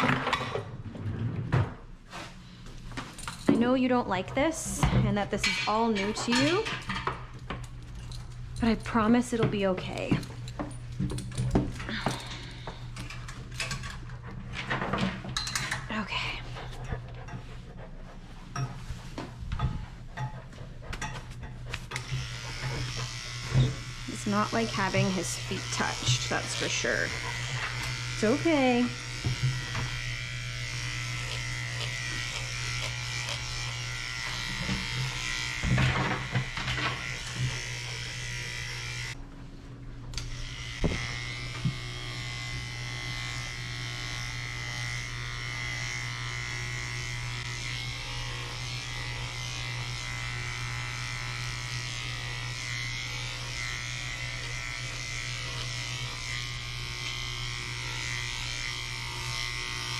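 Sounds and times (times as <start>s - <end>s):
electric clippers buzzing: 5.7s - 14.1s, 21.5s - 39.3s, 40.0s - 59.9s.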